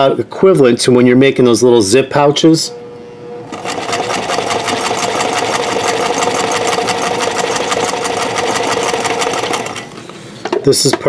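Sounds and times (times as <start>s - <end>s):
sewing machine motor hum: 3.3s - 10.2s
sewing machine stitching: 3.5s - 10.0s.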